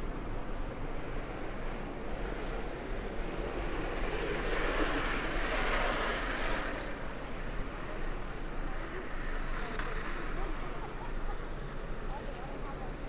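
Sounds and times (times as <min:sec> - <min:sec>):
passing vehicle tyre noise: 0:01.0 - 0:10.8.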